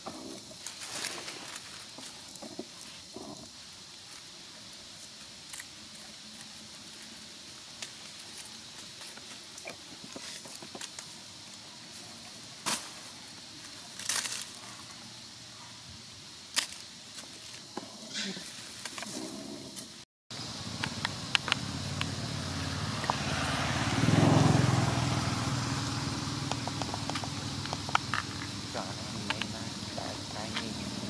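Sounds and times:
faint steady hiss: 0.0 - 31.0
dry leaves crackling: 0.5 - 15.1.

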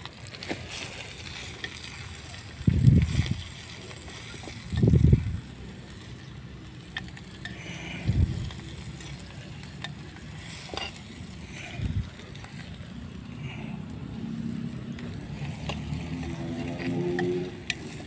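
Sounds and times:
liquid sizzling: 0.0 - 18.0
metal spoon scraping a pot: 6.9 - 12.7, 15.4 - 18.0.

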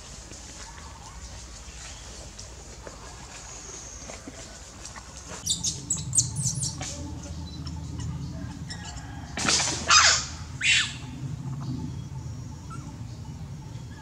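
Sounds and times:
monkeys squealing: 7.6 - 9.1, 9.9 - 11.0.

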